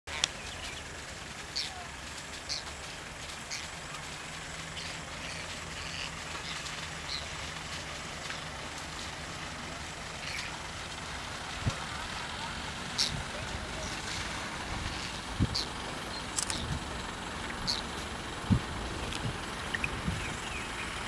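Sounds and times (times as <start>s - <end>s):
vehicle engine idling: 0.1s - 21.0s
bird chirps: 17.5s - 17.9s, 19.6s - 21.0s.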